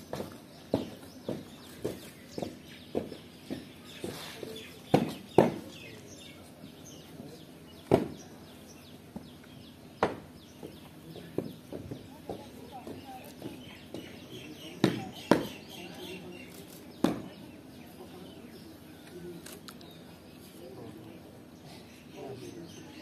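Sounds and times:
boots marching: 0.0 - 5.7
boots stamping: 0.0 - 5.7
small birds chirping: 0.0 - 23.0.

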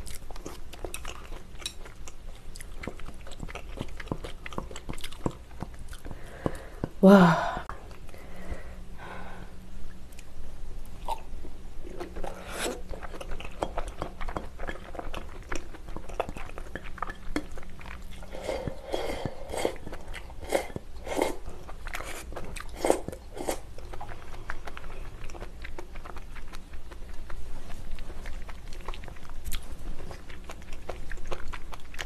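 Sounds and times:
soft crunches of chewing: 0.0 - 7.0, 9.8 - 32.0.

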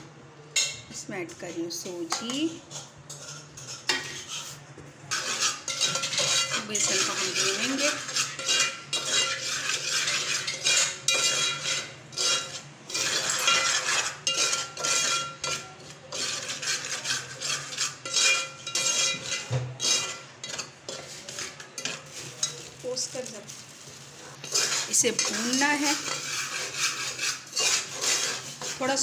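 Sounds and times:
spoon scraping semolina in pot: 0.6 - 29.0.

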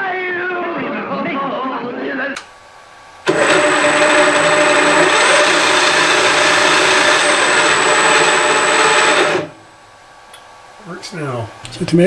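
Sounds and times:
thin high whine: 3.2 - 9.9
drill press motor running: 3.3 - 9.6.

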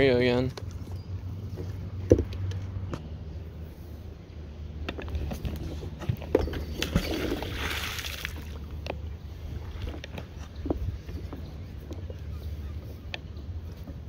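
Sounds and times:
metal knocks and clinks: 6.1 - 7.5
magnet splashing into river: 6.8 - 8.6.

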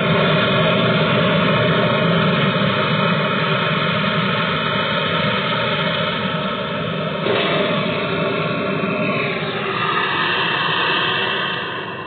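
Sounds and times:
gas torch flame hissing: 7.2 - 12.0.

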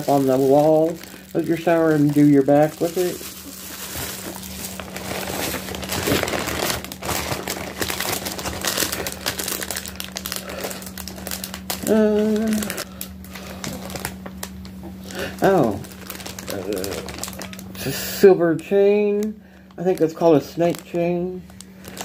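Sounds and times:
plastic bags crinkling: 0.0 - 17.9, 19.0 - 22.0
person humming: 11.8 - 13.0, 16.5 - 17.2.

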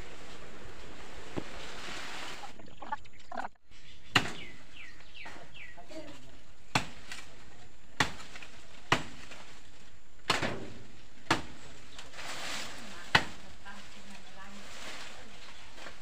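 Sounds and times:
blade chopping into tree trunk: 4.1 - 4.5, 6.7 - 7.3, 8.0 - 9.4, 10.2 - 11.7.

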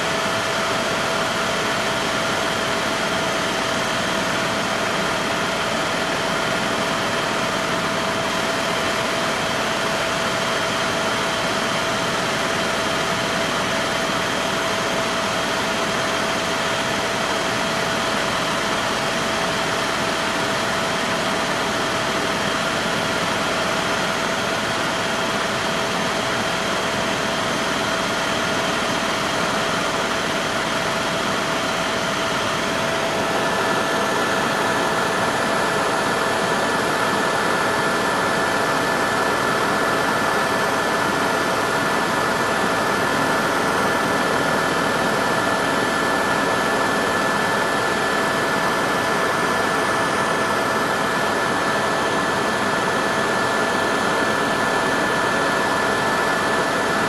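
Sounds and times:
helicopter cabin engine noise: 0.0 - 57.0.

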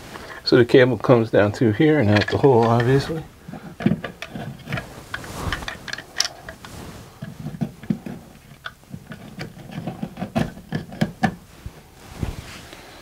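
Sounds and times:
cables and hands rubbing: 1.9 - 13.0
plastic clicking against wall: 7.2 - 11.4.

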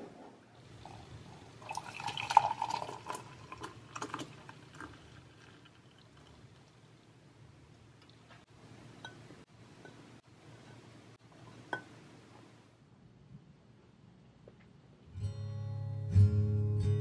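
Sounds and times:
liquid pouring: 0.6 - 7.2.

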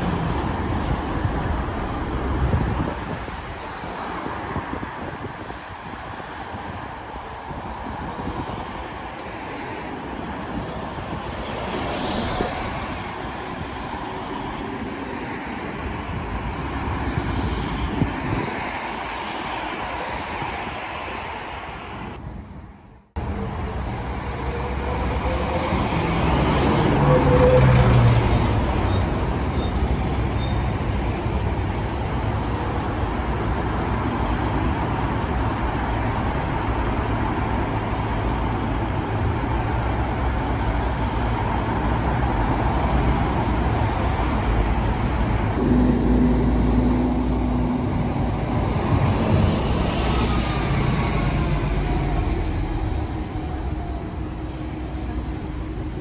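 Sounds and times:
car and bus engines: 0.0 - 56.0
tyres passing: 23.2 - 56.0.

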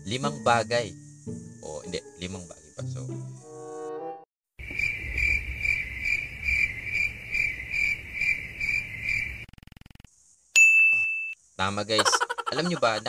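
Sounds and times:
cricket chirping: 0.0 - 3.5, 4.6 - 13.0.

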